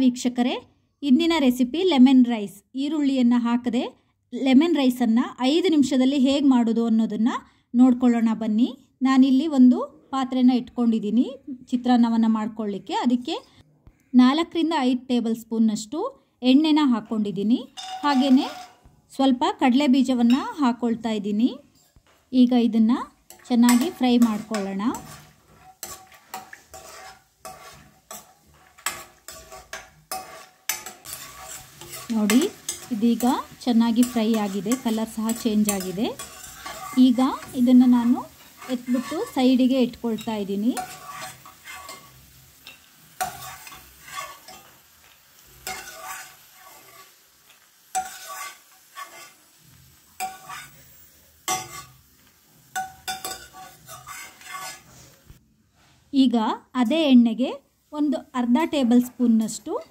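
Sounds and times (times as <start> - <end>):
hot oil sizzling: 16.9 - 55.4, 56.6 - 59.9
steel ladle scraping pan: 17.7 - 18.8, 23.3 - 55.2.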